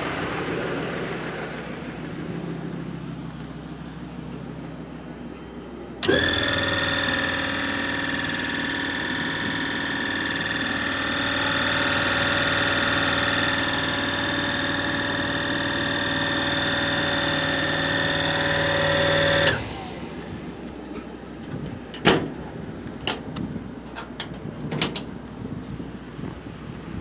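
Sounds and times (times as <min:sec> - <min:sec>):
motor hum: 0:00.0 - 0:22.0
air compressor whining: 0:03.1 - 0:22.7.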